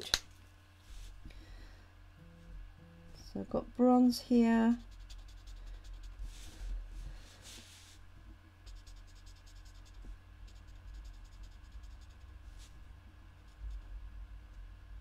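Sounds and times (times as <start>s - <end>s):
marker scratching on cardstock: 4.7s - 6.7s, 8.7s - 12.7s.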